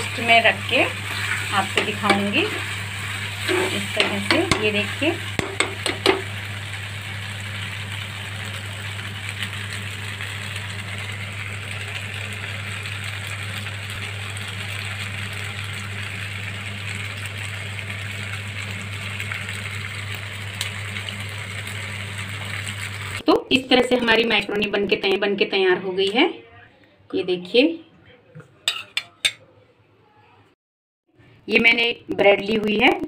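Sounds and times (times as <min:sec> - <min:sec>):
low motor hum: 0:00.0 - 0:23.2
pasta sizzling in a pan: 0:00.0 - 0:23.2.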